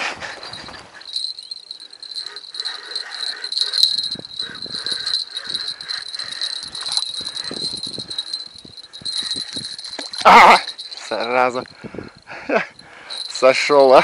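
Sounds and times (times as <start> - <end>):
high-pitched ringing chirr: 0.2 - 14.0
fishing reel knocks and rustles: 3.0 - 11.6.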